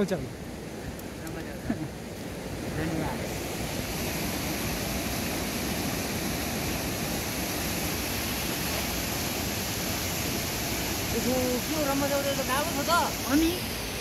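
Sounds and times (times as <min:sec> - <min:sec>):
river rushing over rapids: 0:00.0 - 0:14.0.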